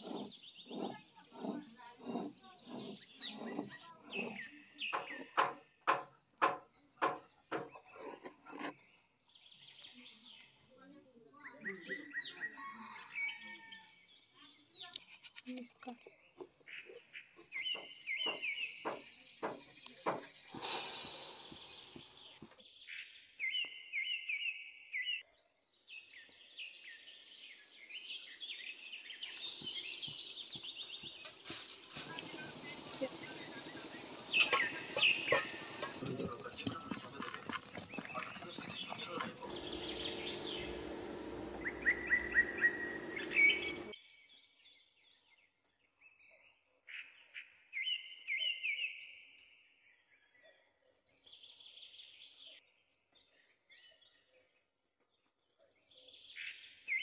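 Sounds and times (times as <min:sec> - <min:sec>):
stone pestle grinding in mortar: 0:00.0 - 0:08.8, 0:30.6 - 0:43.9
bird chirping: 0:00.0 - 0:49.3
sugar poured into water: 0:31.6 - 0:36.3.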